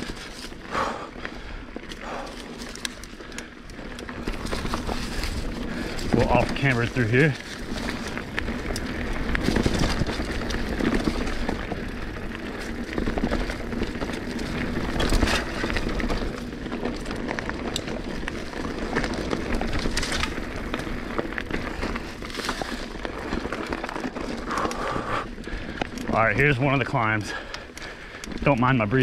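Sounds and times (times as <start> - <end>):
bike clicks and rattles: 0.0 - 29.0
tyres and wind rumble: 0.0 - 29.0.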